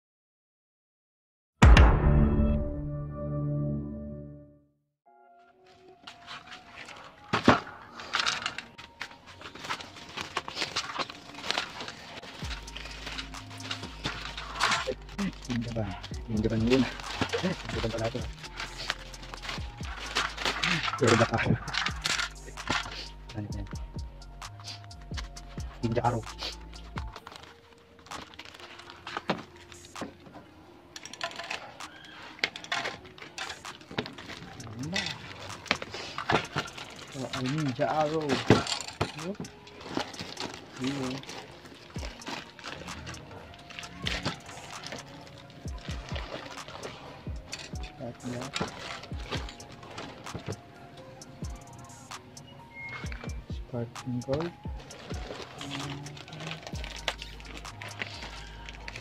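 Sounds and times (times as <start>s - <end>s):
sharp knock: 1.6s - 2.4s
plastic pouch crinkling: 5.6s - 23.8s, 25.8s - 30.2s, 30.9s - 53.1s, 54.0s - 59.0s.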